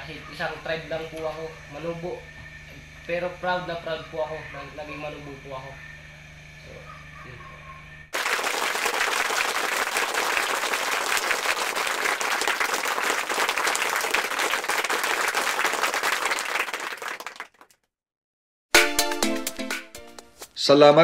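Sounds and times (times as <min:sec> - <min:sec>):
crowd applauding: 0:08.2 - 0:17.8.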